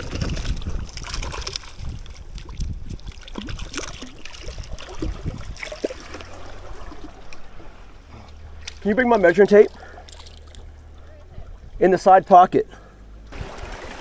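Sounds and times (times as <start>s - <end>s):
bubbly plops: 0.0s - 7.4s
water splashing and sloshing: 0.0s - 14.0s.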